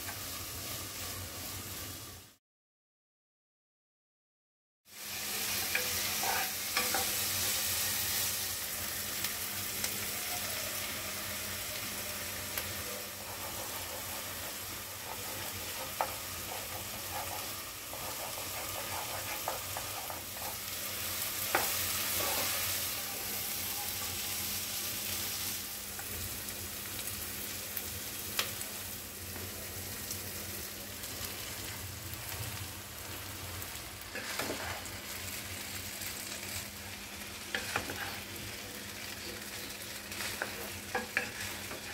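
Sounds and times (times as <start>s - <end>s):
food sizzling in hot oil: 0.0s - 2.4s, 4.9s - 41.9s
wooden spatula scraping a pot: 5.6s - 7.2s, 12.9s - 20.8s, 21.5s - 23.4s, 34.1s - 35.1s, 37.5s - 38.4s, 40.2s - 41.9s.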